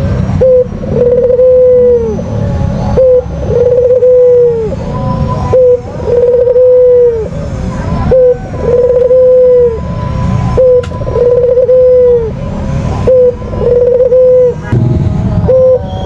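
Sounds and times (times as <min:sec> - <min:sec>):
dove cooing: 0:00.4 - 0:02.2, 0:03.0 - 0:04.8, 0:05.5 - 0:07.3, 0:08.1 - 0:09.8, 0:10.6 - 0:12.3, 0:13.0 - 0:14.6, 0:15.5 - 0:15.9.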